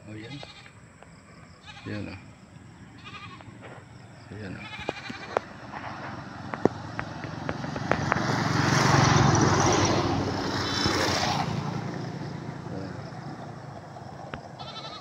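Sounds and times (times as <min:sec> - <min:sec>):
van driving past: 0:02.8 - 0:15.0
motorcycle driving past: 0:05.0 - 0:15.0.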